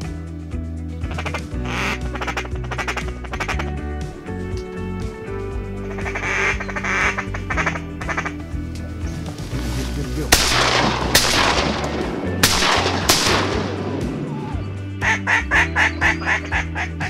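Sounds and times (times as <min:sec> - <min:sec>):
low steady music: 0:00.0 - 0:17.0
ducks quacking: 0:01.0 - 0:04.0, 0:05.8 - 0:08.6, 0:14.4 - 0:17.0
shotgun blasts with echo: 0:10.3 - 0:14.5.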